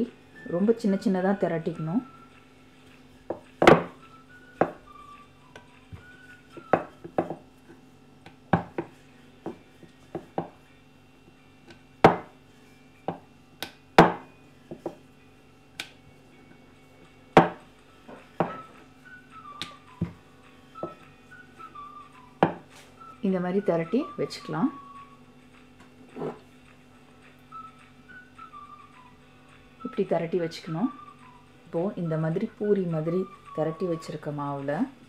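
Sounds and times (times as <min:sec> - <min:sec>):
rolling pin knocking on board: 0:03.3 - 0:04.0, 0:04.6 - 0:04.8, 0:05.9 - 0:07.5, 0:08.3 - 0:10.6, 0:12.0 - 0:12.4, 0:13.1 - 0:15.0, 0:17.4 - 0:18.7, 0:22.4 - 0:22.7.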